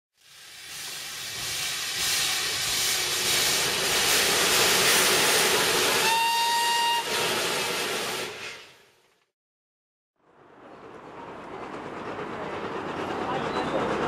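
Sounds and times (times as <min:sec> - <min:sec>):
steam hissing: 0:00.2 - 0:08.9
steam whistle: 0:05.7 - 0:08.7.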